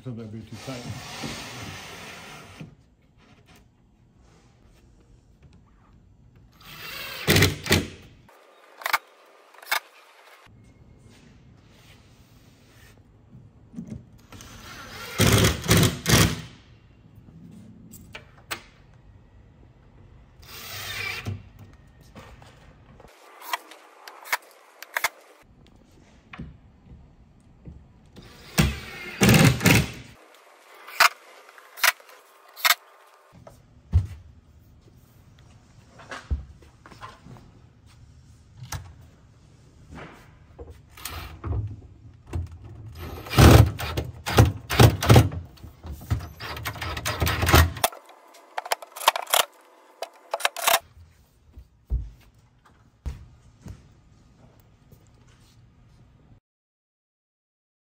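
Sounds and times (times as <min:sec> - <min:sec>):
cordless drill driving screws: 0:06.6 - 0:07.9, 0:20.4 - 0:21.4, 0:28.2 - 0:30.0.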